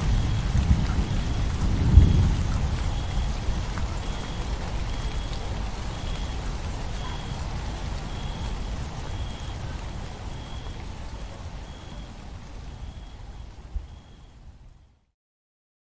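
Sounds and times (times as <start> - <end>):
low thunder rumble: 0.0 - 11.0
crickets trilling: 0.0 - 14.6
rain hiss: 0.0 - 15.1.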